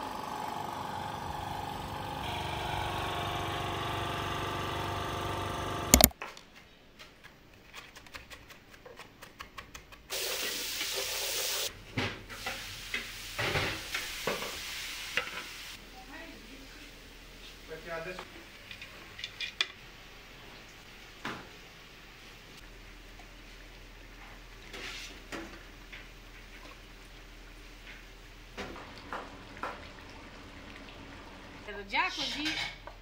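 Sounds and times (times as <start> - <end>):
sharp click: 5.9 - 6.2
pot hissing on stove: 10.1 - 11.7, 12.3 - 15.8
faint sizzle: 10.1 - 33.0.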